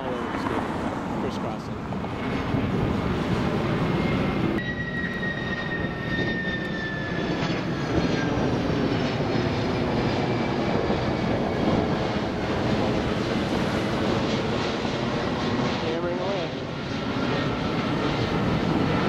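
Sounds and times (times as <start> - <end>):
jet aircraft passing overhead: 0.0 - 19.0.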